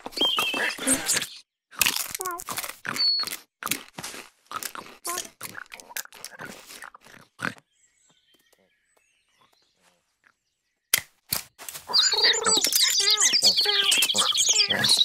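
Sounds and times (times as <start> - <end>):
cartoon noise effects: 11.9 - 15.0.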